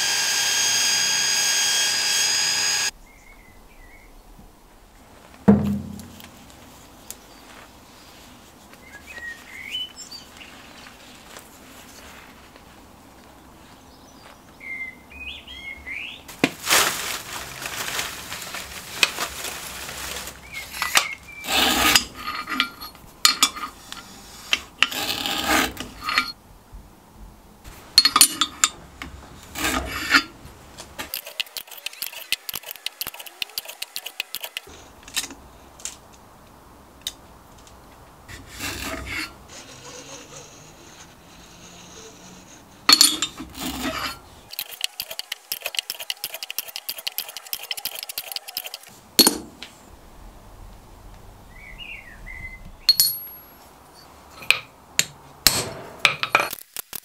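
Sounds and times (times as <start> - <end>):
metal scraping on metal: 20.5 - 26.4, 28.0 - 30.4, 31.0 - 34.9, 38.3 - 48.9
light metal clinks: 52.9 - 54.6.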